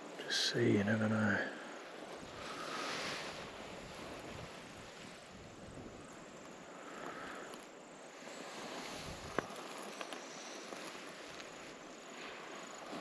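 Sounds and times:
wind blowing over microphone: 1.8 - 6.9, 8.1 - 13.0.

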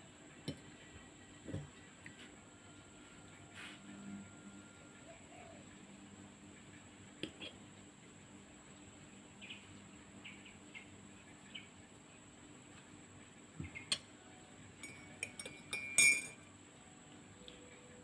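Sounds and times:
cutlery clinking on ceramic: 14.8 - 16.4
spoon stirring in ceramic mug: 14.8 - 16.4.

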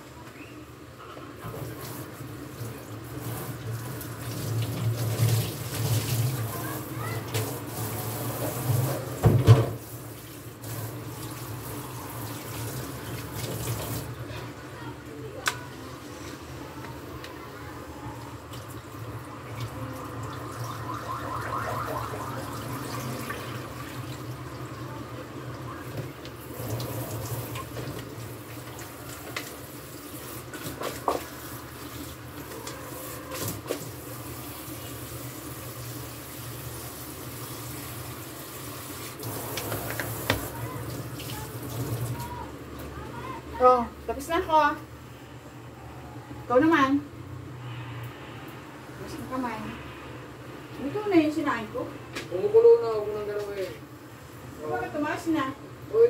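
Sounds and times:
tap water splashing into sink: 8.8 - 9.9, 30.2 - 34.0, 39.1 - 42.4.

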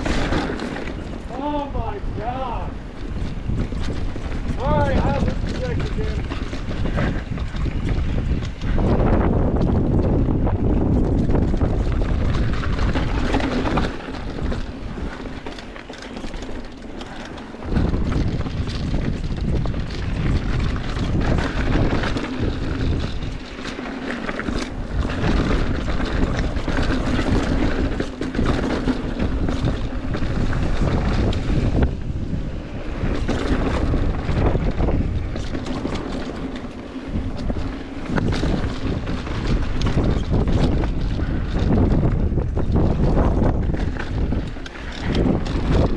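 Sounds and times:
bike clattering over rock: 0.0 - 1.7, 3.0 - 32.2
wind buffeting microphone: 0.0 - 45.9.

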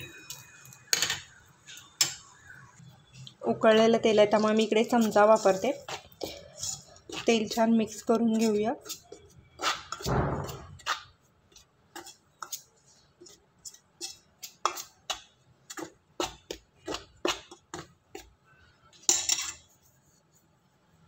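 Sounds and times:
metal spoon scraping steel bowl: 3.7 - 10.1, 11.9 - 15.0.

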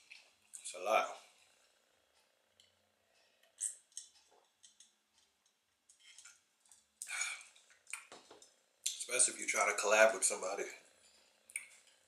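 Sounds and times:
man breathing out: 7.0 - 7.5
man swallowing: 7.0 - 8.1.

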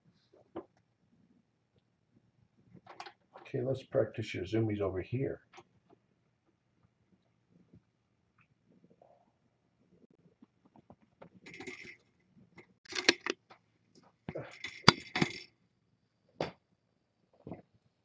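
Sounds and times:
metallic rattling and clinks: 11.4 - 12.0, 14.4 - 15.5.

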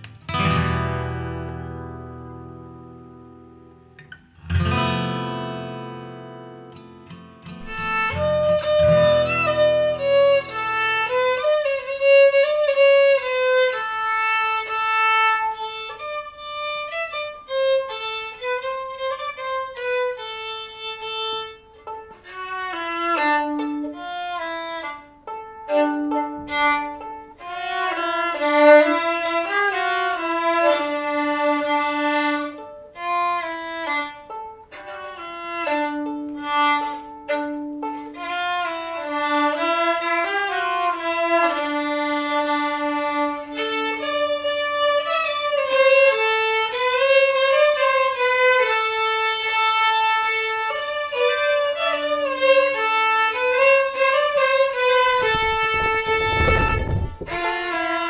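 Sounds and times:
violin playing folk melody: 4.1 - 58.0.

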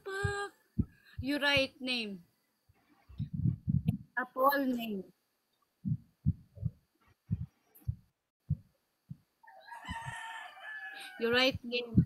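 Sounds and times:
soft low thumps: 0.0 - 2.0, 2.7 - 4.2, 5.8 - 9.3, 11.3 - 12.0
rooster crowing: 9.4 - 11.2.

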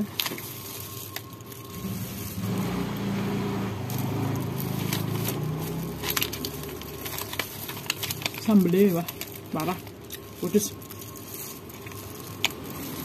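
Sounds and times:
vehicle engine passing by: 1.8 - 7.3.

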